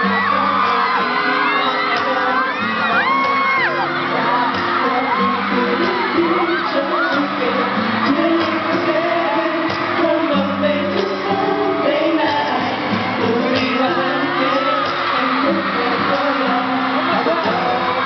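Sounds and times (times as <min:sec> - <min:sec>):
fans whooping and shouting: 0:00.0 - 0:18.0
loud pop backing track: 0:00.0 - 0:18.0
man singing into a microphone: 0:00.0 - 0:18.0.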